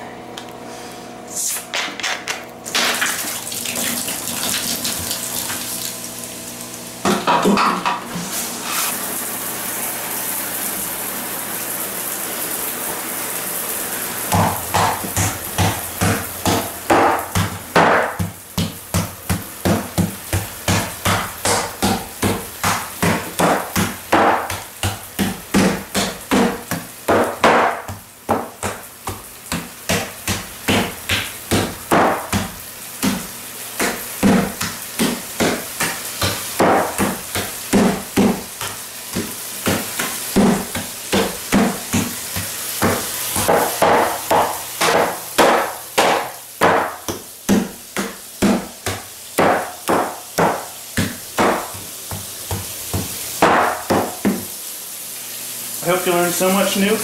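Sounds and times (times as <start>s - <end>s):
plastic toy hammer pounding bananas: 14.3s - 54.4s
steady hiss: 32.3s - 57.0s.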